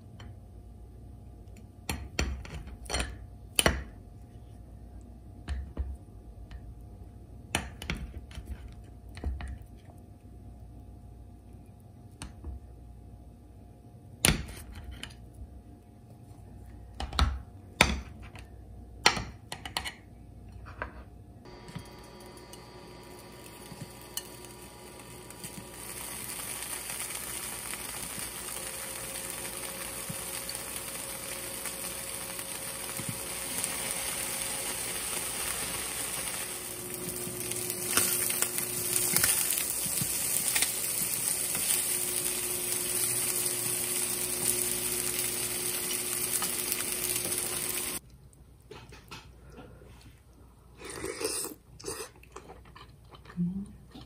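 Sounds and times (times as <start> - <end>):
meat sizzling in frying pan: 21.5 - 48.0.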